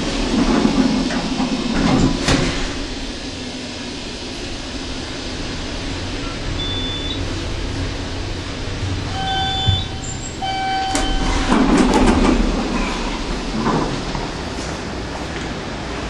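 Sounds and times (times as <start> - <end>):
elevator doors sliding open: 0.0 - 16.0
elevator humming: 0.0 - 16.0
elevator clunk: 6.1 - 15.4
electronic arrival tones: 9.1 - 11.5.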